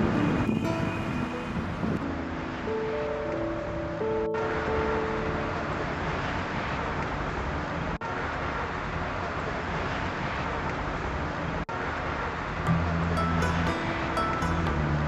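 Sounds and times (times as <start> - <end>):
traffic noise: 0.0 - 15.0
music with clicking percussion: 12.7 - 15.0.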